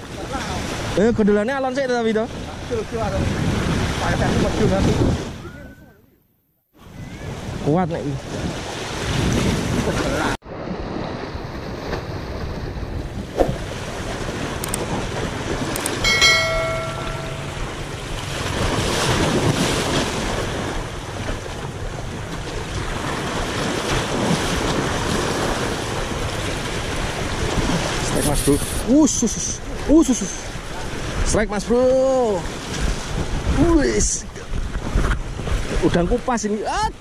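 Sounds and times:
wind buffeting microphone: 2.2s - 5.9s, 6.8s - 28.9s, 29.6s - 36.4s
sea waves washing: 7.3s - 33.8s
short multi-pitch ringing tone: 16.0s - 18.0s.

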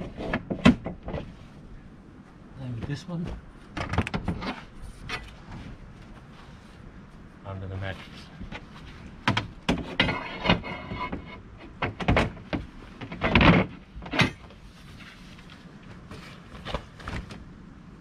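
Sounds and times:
metal pole scraping and rattling: 0.0s - 1.4s, 3.8s - 5.7s, 8.0s - 15.5s.

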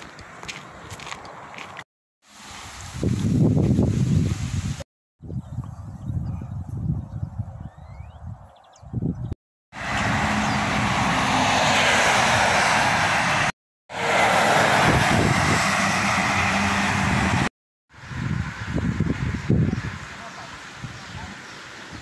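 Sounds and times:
heavy traffic passing: 9.7s - 22.0s.

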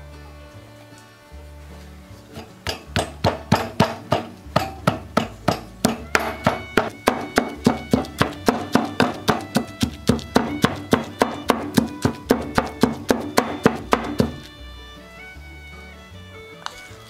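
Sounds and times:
background music: 0.0s - 17.0s
pestle pounding in wooden mortar: 2.6s - 14.5s.

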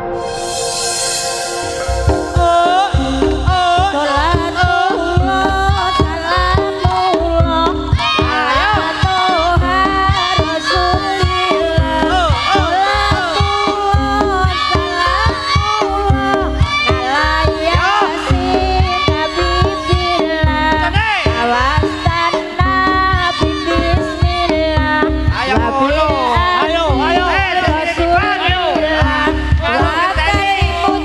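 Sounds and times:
high wavering melody: 0.0s - 4.5s
fast hand drumming: 2.4s - 31.0s.

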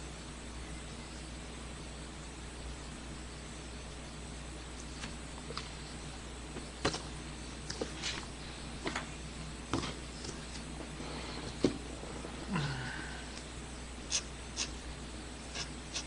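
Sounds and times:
steady low hum: 0.0s - 16.0s
pen scratching on paper: 14.1s - 14.8s, 15.5s - 16.0s.

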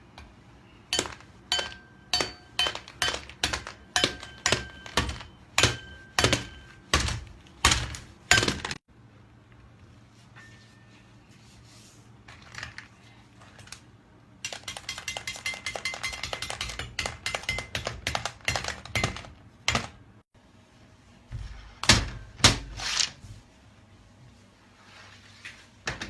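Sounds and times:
blade chopping hard candy on steel: 0.9s - 8.8s.

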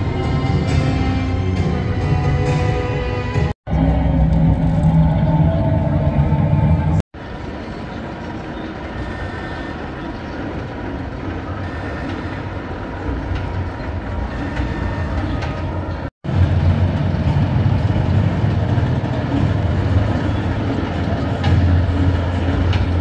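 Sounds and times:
strong low hum: 0.0s - 8.3s
roller coaster rumbling on track: 0.0s - 23.0s.

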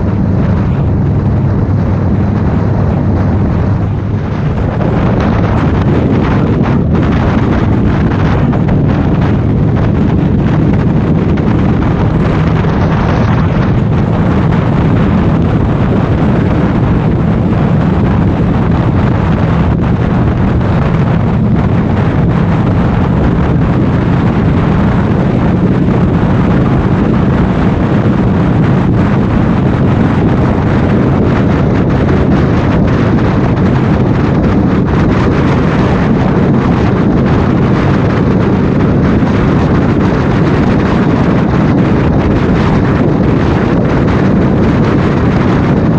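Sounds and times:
heavy wind on microphone: 0.0s - 45.9s
motorcycle engine: 0.0s - 45.9s
road noise: 0.0s - 45.9s.

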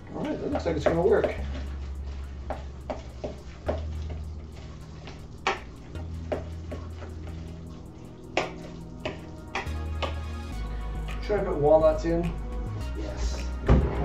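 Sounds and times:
spoon stirring wet mixture: 0.0s - 10.8s
background music with bass: 0.0s - 14.0s.

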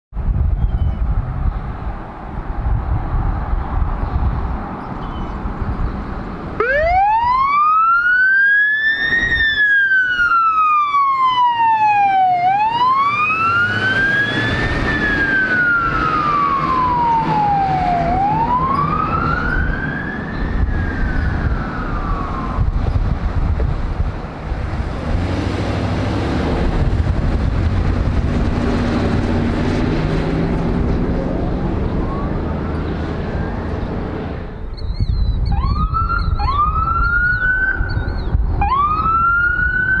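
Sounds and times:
passing vehicle engine and tyres: 0.2s - 40.0s
electronic siren wailing: 6.6s - 23.0s, 35.5s - 40.0s.

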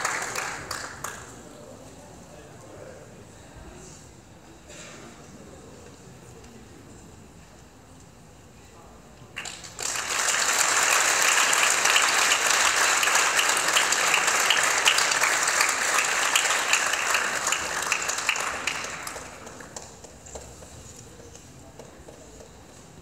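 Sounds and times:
audience applauding: 0.0s - 1.3s, 9.4s - 20.7s.

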